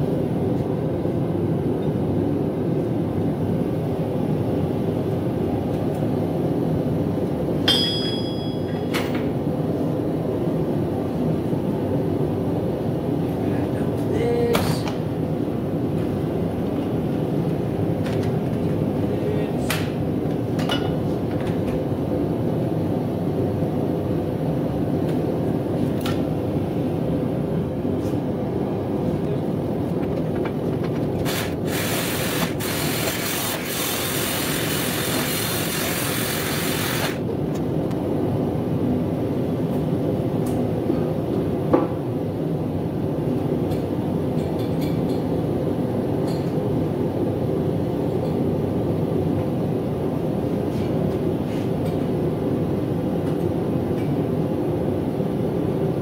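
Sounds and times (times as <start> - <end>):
forge burner roaring: 0.0 - 7.9, 9.1 - 44.4
sharp metal clinks: 7.7 - 8.8
hiss: 31.3 - 37.2.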